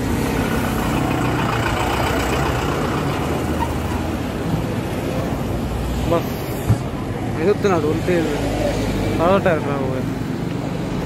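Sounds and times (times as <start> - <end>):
tractor diesel engine idling: 0.0 - 4.5.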